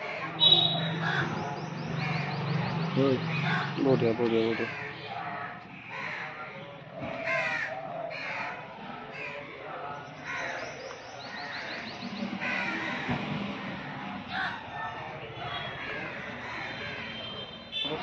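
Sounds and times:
crows cawing: 0.0 - 2.4, 3.2 - 9.6, 10.2 - 18.0
high chirps: 0.4 - 3.4.

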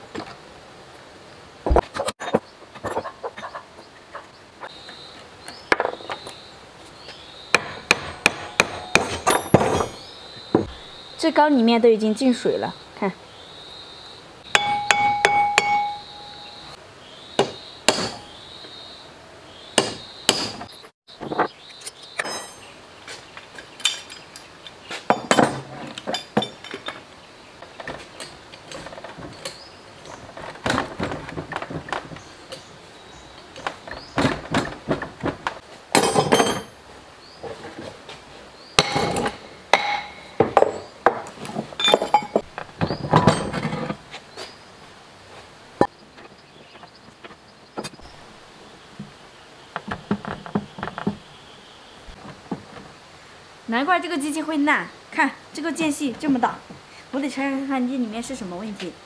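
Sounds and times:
hammer knocking on metal: 14.6 - 16.1.

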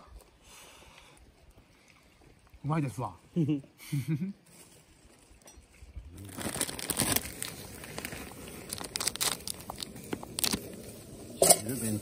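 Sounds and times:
plastic wrapper crinkling and tearing: 6.2 - 10.9.

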